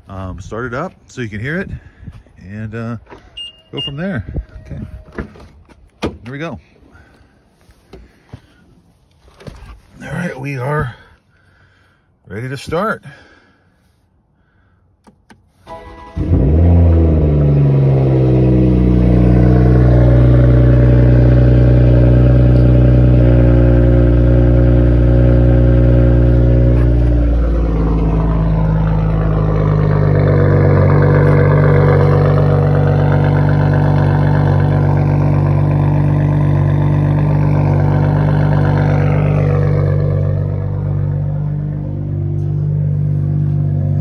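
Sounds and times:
car engine idling: 15.0s - 44.0s
loud exhaust drone: 16.1s - 44.0s.

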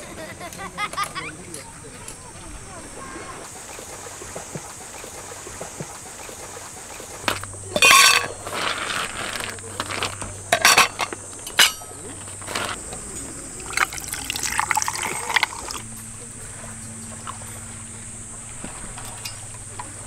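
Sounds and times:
insect chorus: 0.0s - 20.0s
cups clinking and knocking: 7.0s - 15.9s.

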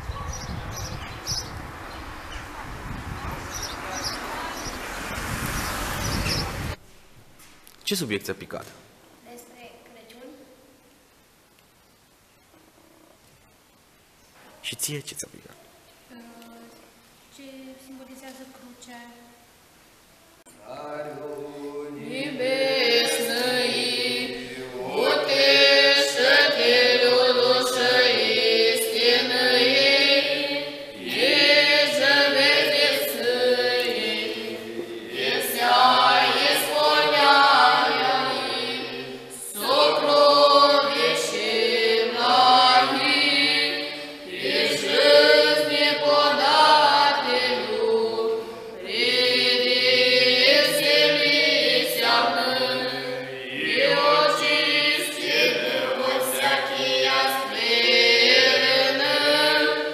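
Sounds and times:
choir singing a church chant: 20.6s - 59.9s.

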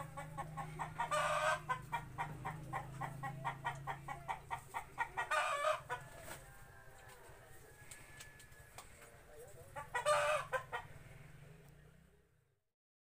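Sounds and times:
chicken squawk: 0.0s - 6.4s, 9.7s - 11.2s
chicken clucking: 0.0s - 11.6s.

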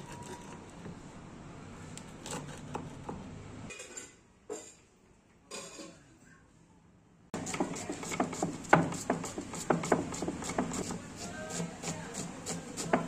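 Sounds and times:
kitchen background noise: 0.0s - 13.0s
pizza cutter scraping wooden board: 7.4s - 13.0s.

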